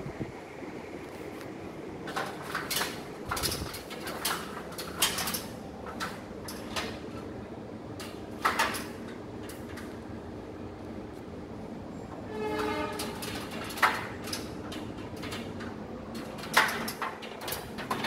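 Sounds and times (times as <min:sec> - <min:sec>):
steady background hum: 0:00.0 - 0:18.0
sharp clicks and knocks: 0:02.1 - 0:07.3, 0:08.0 - 0:10.0, 0:12.9 - 0:18.0.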